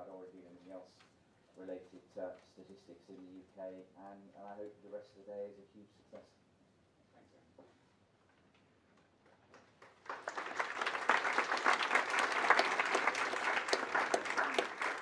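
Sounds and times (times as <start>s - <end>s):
audience applauding: 9.5s - 15.0s.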